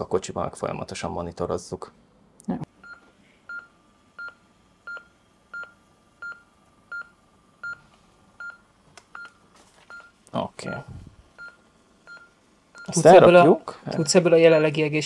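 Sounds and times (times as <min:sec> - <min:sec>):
monitor heart-rate beeps: 0:02.8 - 0:13.2, 0:14.0 - 0:14.9.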